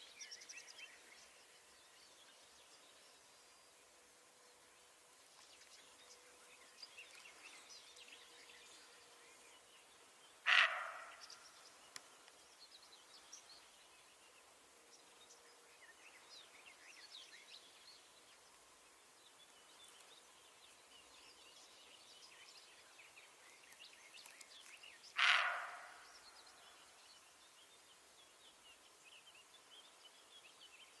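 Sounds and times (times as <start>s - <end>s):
faint birdsong: 0.0s - 31.0s
deer barking: 10.5s - 11.2s, 25.2s - 26.0s.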